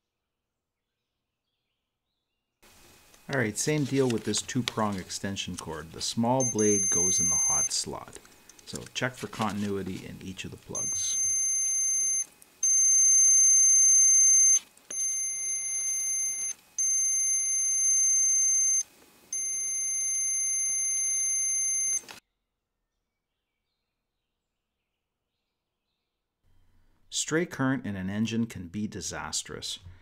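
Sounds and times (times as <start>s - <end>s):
multimeter continuity beeps: 3.1s - 22.2s.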